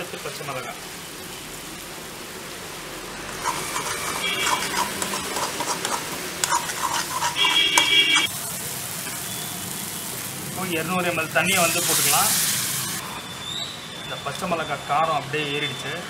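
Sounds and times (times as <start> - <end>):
vegetables sizzling in a pan: 0.0 - 14.5
spatula scraping a pan: 3.4 - 8.3
ringing metal squeals: 13.0 - 15.2.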